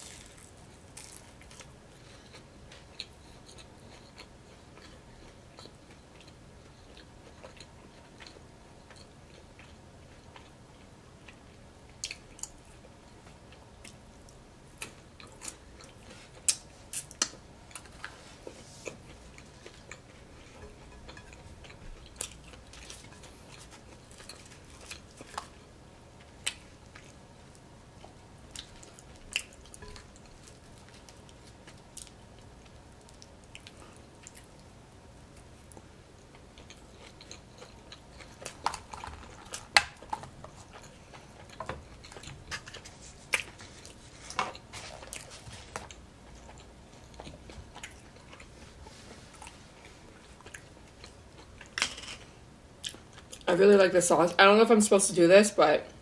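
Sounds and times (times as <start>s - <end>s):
person chewing and biting food: 0.0s - 10.5s.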